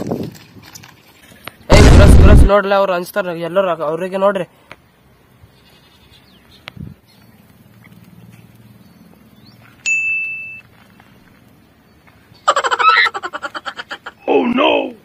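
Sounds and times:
high ding tone: 9.8s - 10.6s.

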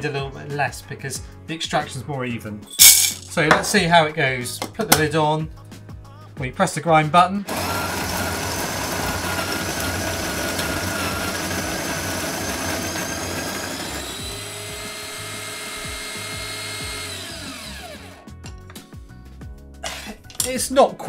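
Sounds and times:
coffee grinder grinding beans: 7.4s - 18.2s.

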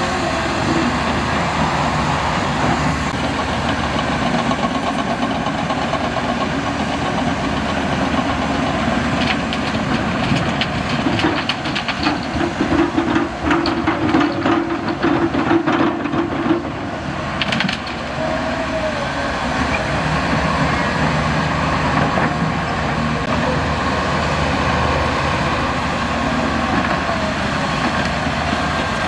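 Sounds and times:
diesel engine running: 0.0s - 29.0s
rattling and clanking knocks: 3.1s - 18.2s.

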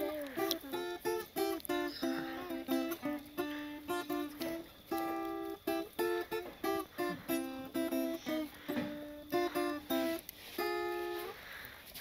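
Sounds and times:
acoustic guitar plucked melody: 0.0s - 11.4s.

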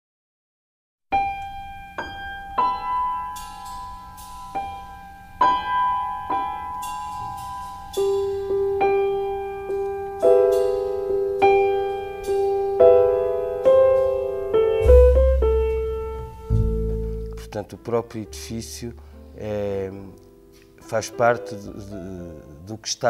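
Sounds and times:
slow piano melody: 1.1s - 22.9s
low bass sound: 14.8s - 19.0s.

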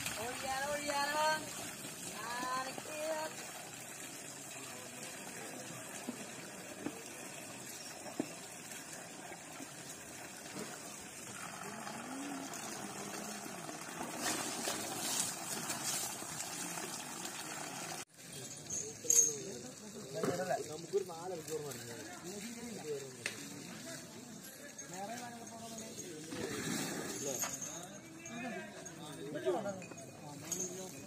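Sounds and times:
water running and splashing: 0.0s - 24.4s.

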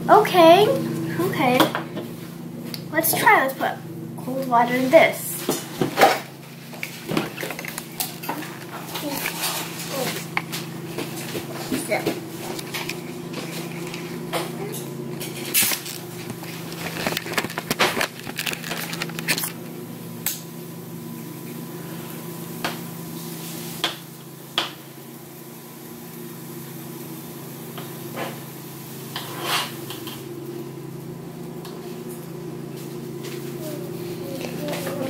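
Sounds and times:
steady low hum: 0.0s - 35.0s
plastic packaging crinkling: 15.5s - 19.7s.

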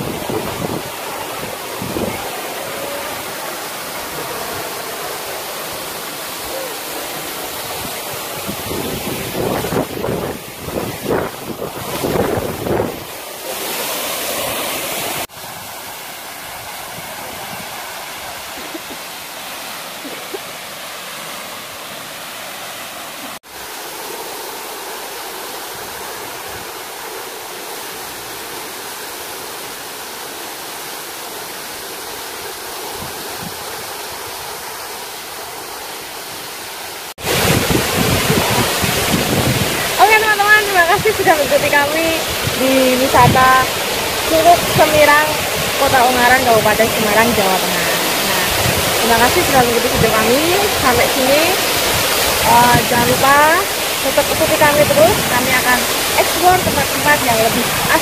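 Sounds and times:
wind buffeting microphone: 0.0s - 2.3s, 7.6s - 13.2s, 37.2s - 58.0s
waterfall splashing into pool: 0.0s - 58.0s.

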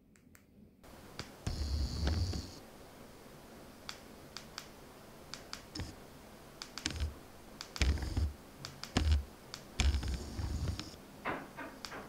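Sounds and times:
plastic remote buttons clicking: 6.6s - 11.0s.

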